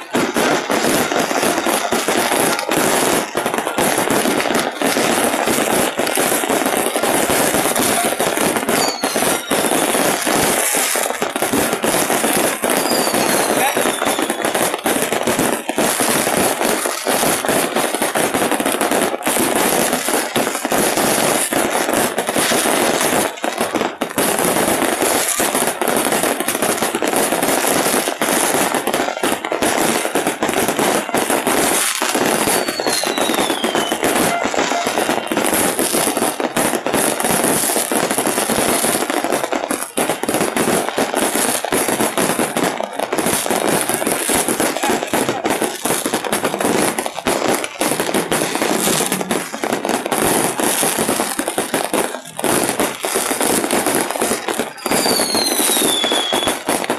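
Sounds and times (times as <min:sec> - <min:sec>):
falling firework whistle: 0:00.0 - 0:17.5, 0:29.2 - 0:36.4, 0:54.1 - 0:56.9
fireworks crackling and popping: 0:00.0 - 0:56.9.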